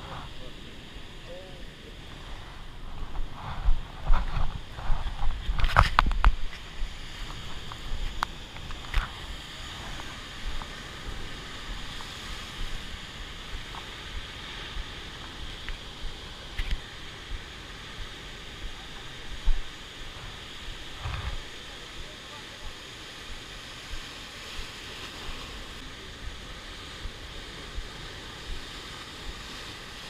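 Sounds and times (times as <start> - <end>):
wind buffeting microphone: 0.0 - 22.2
ocean surf breaking on rocks: 0.0 - 30.0.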